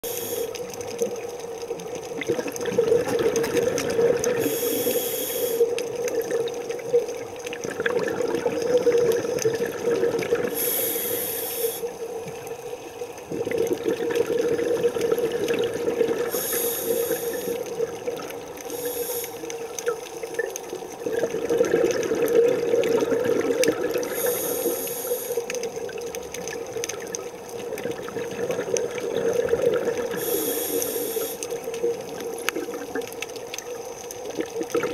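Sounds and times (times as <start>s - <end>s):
hissing regulator inhale: 0.0s - 0.6s, 4.4s - 5.8s, 10.5s - 12.1s, 16.2s - 17.7s, 18.6s - 19.7s, 24.0s - 25.6s, 30.1s - 31.7s
bubbling exhale: 2.2s - 6.9s, 7.6s - 12.1s, 13.3s - 19.7s, 20.4s - 25.7s, 27.6s - 33.1s.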